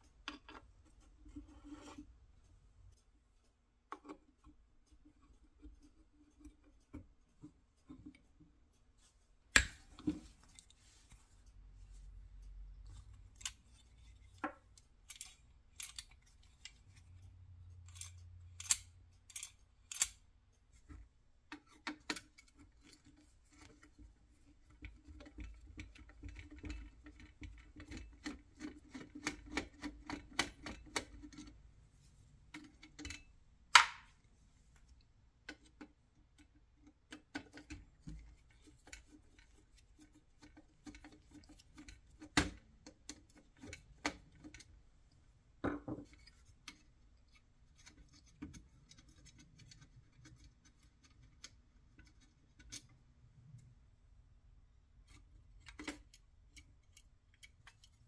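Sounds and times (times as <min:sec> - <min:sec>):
screwdriver clicks and scrapes: 0:12.8 - 0:17.2, 0:17.8 - 0:20.2, 0:21.5 - 0:31.6, 0:35.5 - 0:44.8, 0:46.0 - 0:53.6, 0:55.0 - 0:58.0.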